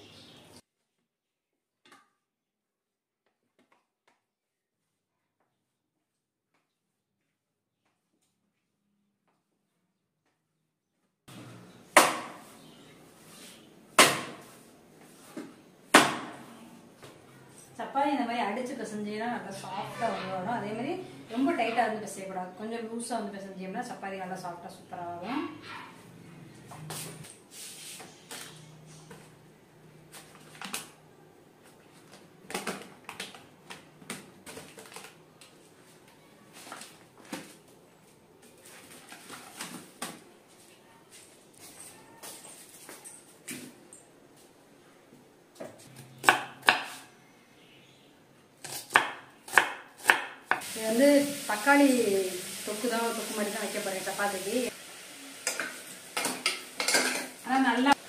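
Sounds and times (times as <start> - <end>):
paper rustling: 31.6 - 40.1.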